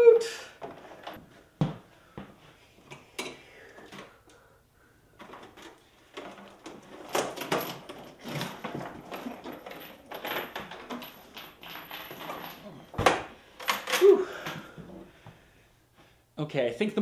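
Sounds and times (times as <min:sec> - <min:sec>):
chain rattling: 0:05.4 - 0:14.1.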